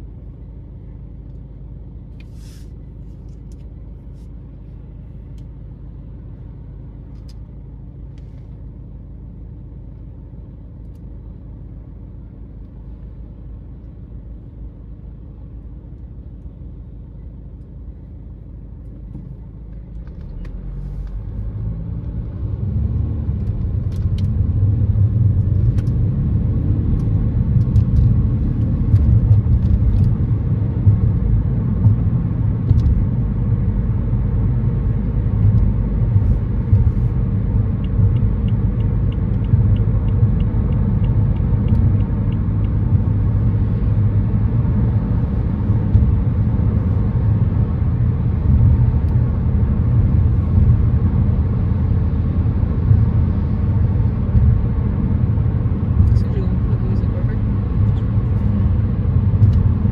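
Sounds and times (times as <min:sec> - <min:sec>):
car engine and tyre noise: 0:00.0 - 0:59.9
light ticks: 0:37.8 - 0:42.9.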